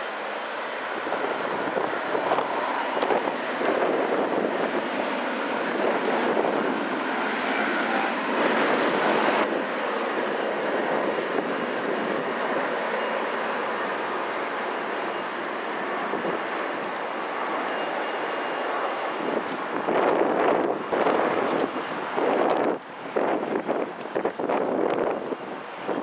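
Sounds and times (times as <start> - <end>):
jet engines rushing hum: 0.0 - 26.0.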